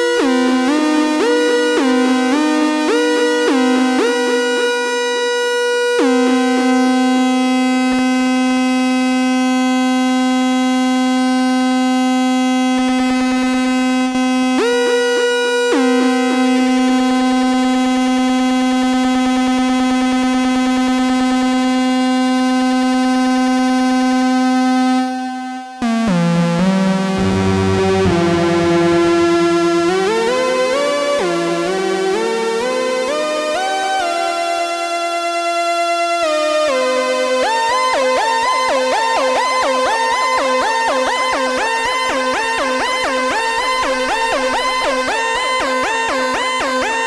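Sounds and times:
buzzy synthesizer note: 0:24.6 - 0:33.4
falling stepped synthesizer notes: 0:25.8 - 0:33.5.

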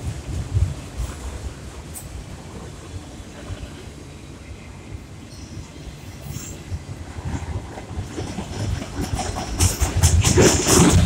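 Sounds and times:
freight train wheels rumbling and clacking: 0:00.0 - 0:11.0.

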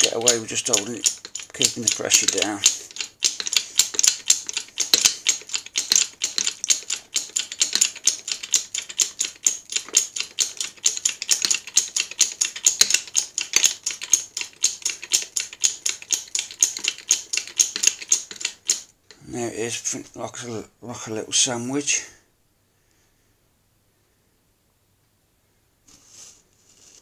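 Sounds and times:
hydraulic jack pump clicking: 0:00.0 - 0:18.9.

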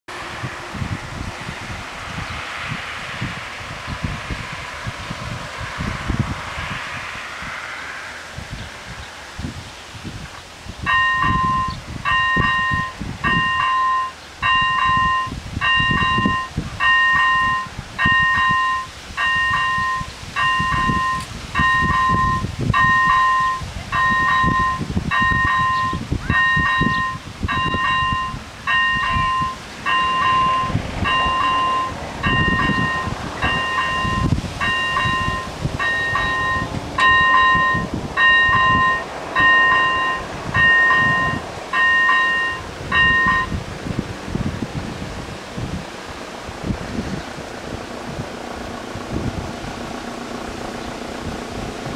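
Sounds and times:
level-crossing warning bell: 0:10.9 - 0:43.6.

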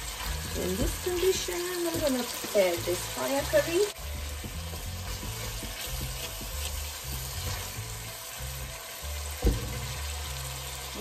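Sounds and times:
background music with bass line: 0:00.0 - 0:11.0
spice paste sizzling in oil: 0:00.0 - 0:11.0
spatula stirring in pot: 0:00.2 - 0:10.1
sharp knock: 0:09.4 - 0:09.8.

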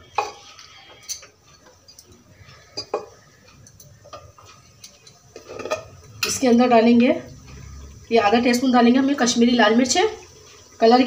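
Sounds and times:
spatula knocking pot: 0:02.7 - 0:06.4.

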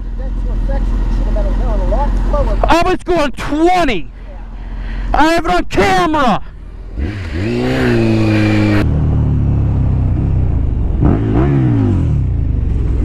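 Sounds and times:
motorcycle engine revving: 0:06.4 - 0:13.0
motorcycle engine pulling away: 0:06.8 - 0:13.0.

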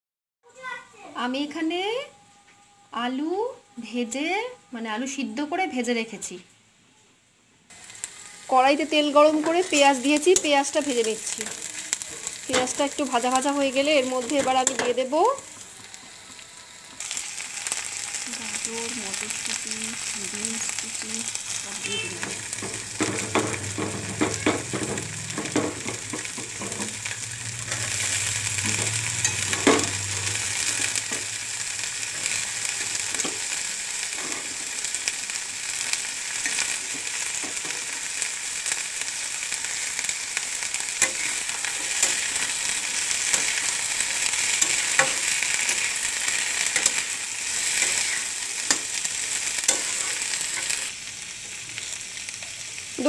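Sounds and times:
vegetables sizzling in oil: 0:07.7 - 0:53.0
metal spatula scraping a pan: 0:21.5 - 0:34.8, 0:39.7 - 0:50.9.

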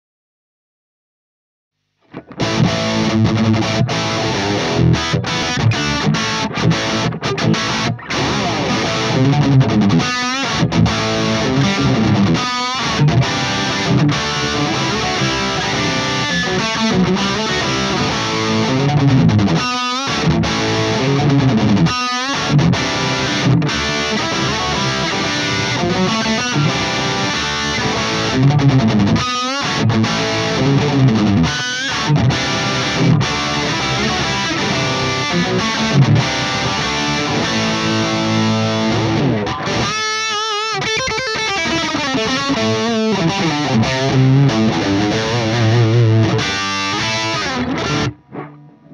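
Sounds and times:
distorted electric guitar riffs: 0:02.0 - 0:48.9.

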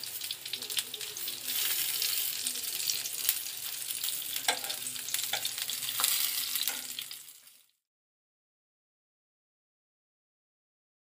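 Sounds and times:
food sizzling in oil: 0:00.0 - 0:07.8
metal tongs tapping pan: 0:04.3 - 0:07.1.

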